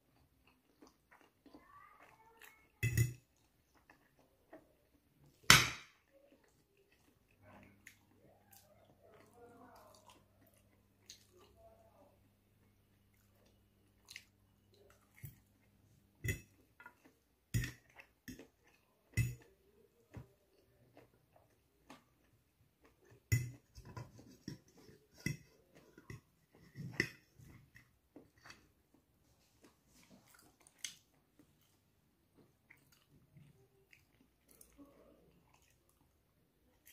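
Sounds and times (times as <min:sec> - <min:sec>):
chewing noodles: 0:00.0 - 0:36.9.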